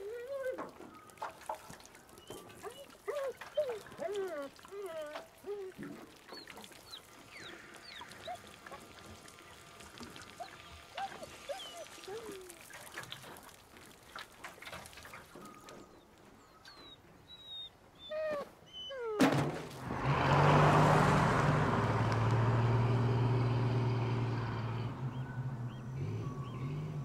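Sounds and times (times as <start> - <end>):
car driving past: 19.7 - 27.0
birds chirping: 21.9 - 27.0.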